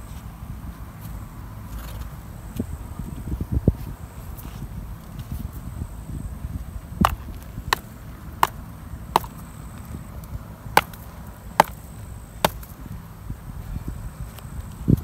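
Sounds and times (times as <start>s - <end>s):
sandals knocking together: 7.0s - 9.4s, 10.8s - 11.0s, 11.6s - 11.8s.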